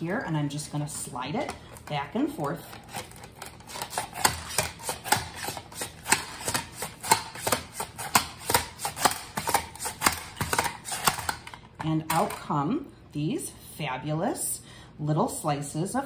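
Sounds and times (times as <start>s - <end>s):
mandoline slicing onion: 2.8s - 11.5s.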